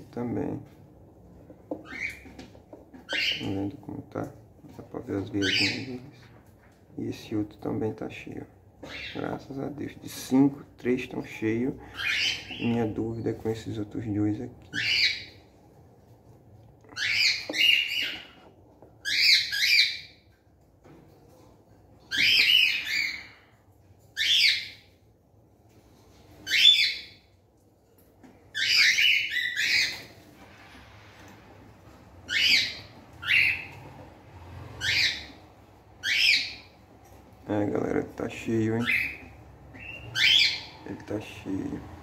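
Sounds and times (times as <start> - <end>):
cockatiels calling: 1.7 - 3.6, 5.4 - 6.0, 8.8 - 9.3, 11.8 - 13.0, 14.7 - 15.4, 16.9 - 20.2, 22.1 - 23.5, 24.2 - 24.9, 26.4 - 27.2, 28.5 - 30.2, 32.2 - 33.9, 34.7 - 36.8, 38.8 - 40.8.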